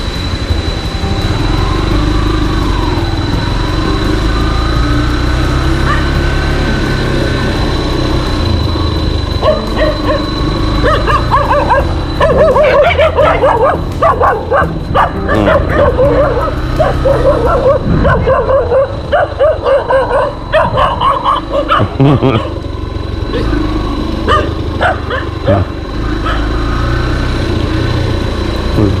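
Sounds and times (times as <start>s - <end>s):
motorcycle engine running: 0.0s - 29.0s
dogs barking: 5.7s - 6.4s, 9.4s - 22.7s, 23.3s - 27.0s.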